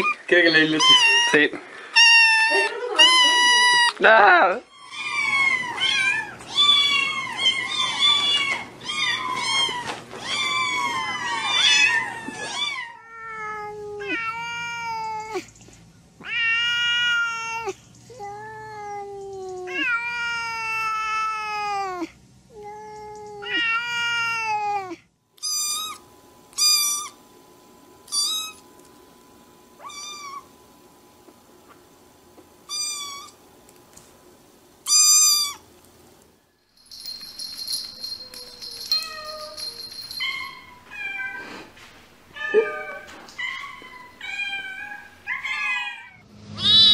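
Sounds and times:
kittens mewing: 0.0 - 4.0, 4.7 - 15.5, 29.8 - 30.6, 32.7 - 33.4
cat long drawn-out meows: 16.2 - 17.8, 23.3 - 25.0.

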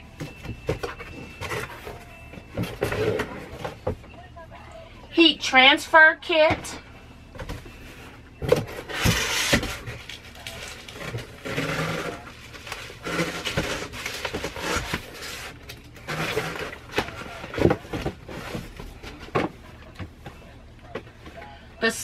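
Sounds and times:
rummaging through cardboard box: 0.1 - 4.1, 7.3 - 20.2.

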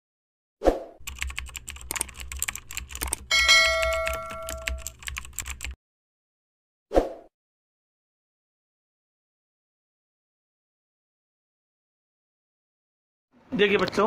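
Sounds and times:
keyboard typing clicks: 1.0 - 5.8
bright bell-like chime: 3.3 - 4.8.

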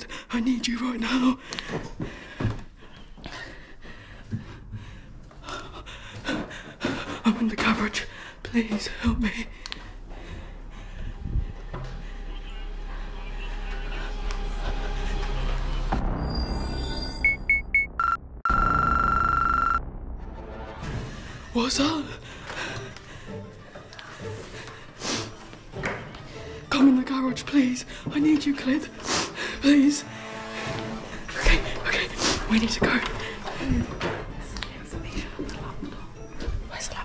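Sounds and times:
low background music: 0.0 - 17.9, 19.8 - 37.0
person breathing hard: 1.4 - 7.3
footsteps on wooden stairs: 1.4 - 12.0
electronic beeping: 17.2 - 19.8.

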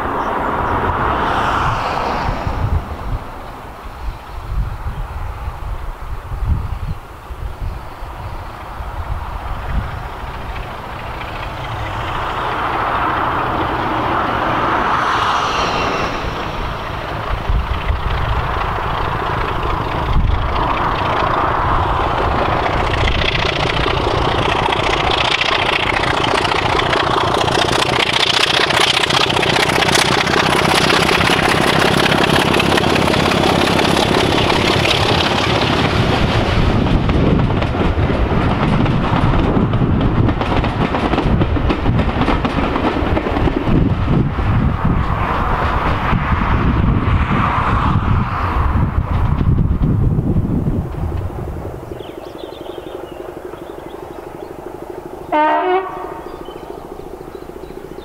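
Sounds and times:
diesel locomotive engine: 0.0 - 58.0
train wheels clattering over rails: 8.5 - 46.8.

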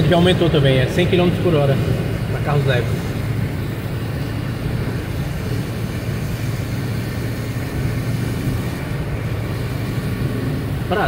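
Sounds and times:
engine and tyre hum: 0.0 - 11.0
water hissing under wheels: 0.0 - 11.0.

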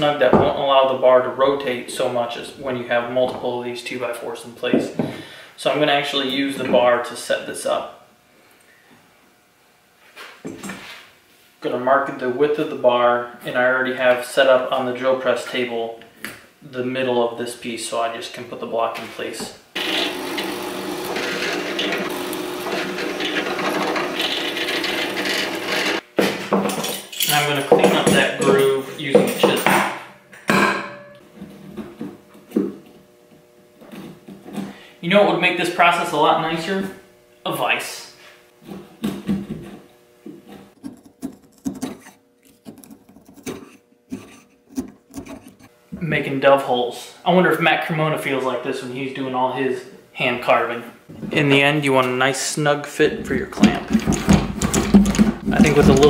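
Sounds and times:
drill press boring into wood: 19.8 - 26.0
wood chisel cutting: 19.8 - 26.0, 40.8 - 45.8.

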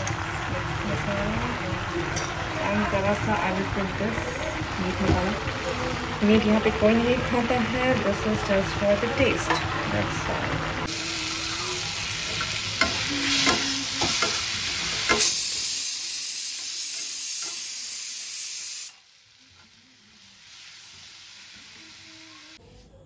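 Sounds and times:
food sizzling in a pan: 0.0 - 22.6.

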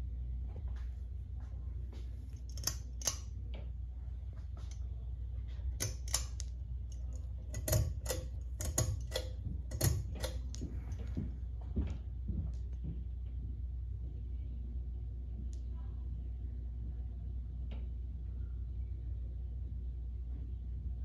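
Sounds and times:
ceiling fan hum: 0.0 - 21.0
light clicks and ticks: 2.3 - 3.7, 5.8 - 11.2.

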